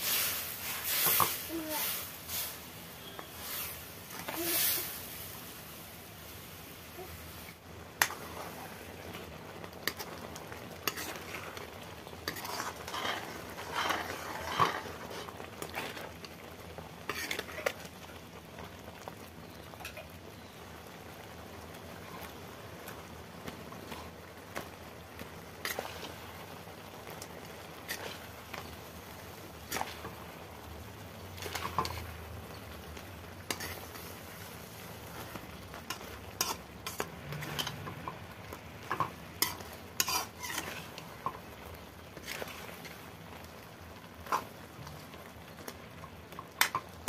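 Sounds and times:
metal spatula scraping a pan: 0.0s - 5.2s, 10.8s - 16.4s, 17.0s - 17.8s, 27.8s - 28.7s, 29.6s - 30.2s, 31.4s - 32.1s, 33.4s - 34.2s, 35.1s - 38.2s, 38.8s - 41.4s, 42.1s - 43.0s
thick gravy bubbling and sizzling: 0.0s - 47.0s.

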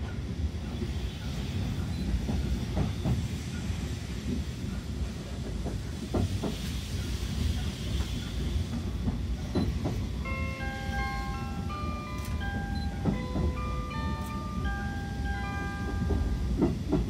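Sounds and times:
train coach low rumble: 0.0s - 17.0s
hiss: 0.4s - 10.2s
announcement chime melody: 10.2s - 16.5s.

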